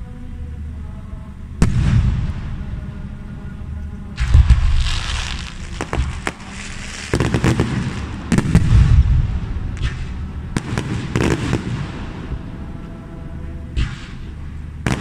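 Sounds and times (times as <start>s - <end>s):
low rumbling booms: 1.5s - 15.0s
fireworks cracks and bangs: 4.2s - 12.4s, 13.8s - 15.0s.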